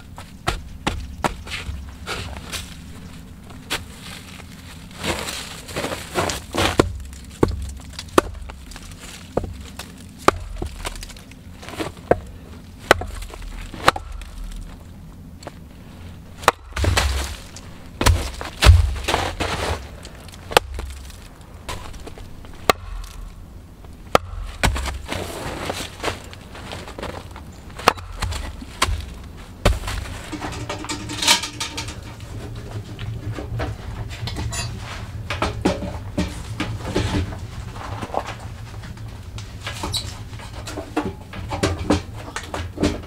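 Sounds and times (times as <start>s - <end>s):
wood splitting crack: 5.0s - 14.8s, 16.4s - 23.4s, 24.1s - 30.4s.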